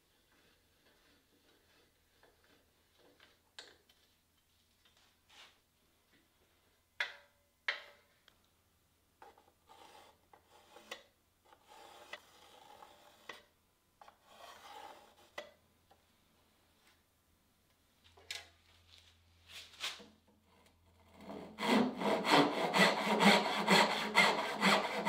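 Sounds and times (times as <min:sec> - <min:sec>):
pencil scraping along wood: 0:09.6 - 0:15.4, 0:21.2 - 0:25.0.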